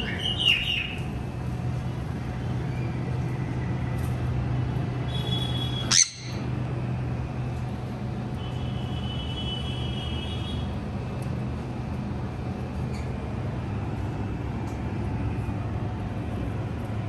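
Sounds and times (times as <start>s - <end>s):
traffic hum: 0.0s - 17.0s
parrot squawk: 5.9s - 6.4s.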